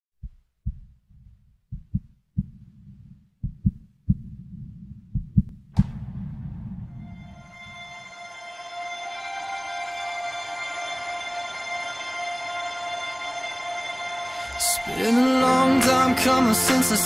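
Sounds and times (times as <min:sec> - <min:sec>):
heartbeat thumps: 0:00.2 - 0:07.1
low rumble: 0:00.7 - 0:08.3
sharp hit: 0:05.8 - 0:08.4
musical tones: 0:07.1 - 0:17.0.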